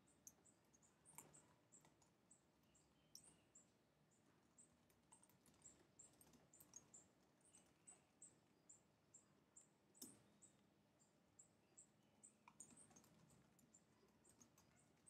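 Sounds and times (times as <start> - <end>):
keyboard typing: 12.5 - 15.0.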